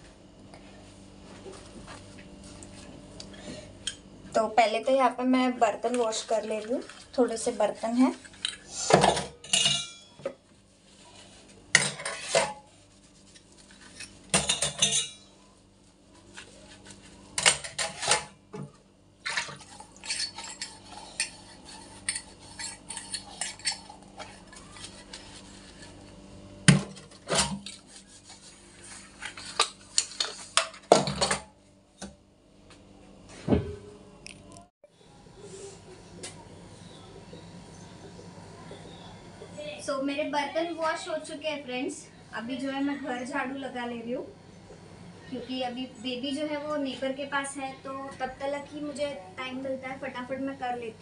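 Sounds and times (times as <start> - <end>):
dishes clattering in steel sink: 8.9 - 10.3, 11.7 - 12.7, 14.3 - 15.3.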